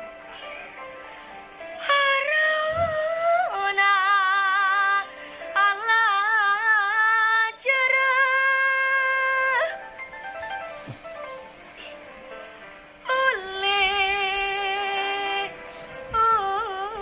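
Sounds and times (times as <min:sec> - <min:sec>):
girl singing with vibrato: 0:01.8 - 0:09.8.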